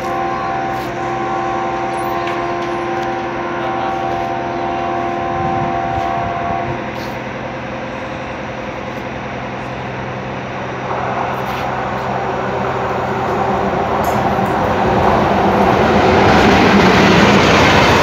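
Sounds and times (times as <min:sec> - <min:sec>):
locomotive horn blast: 0:00.0 - 0:07.2.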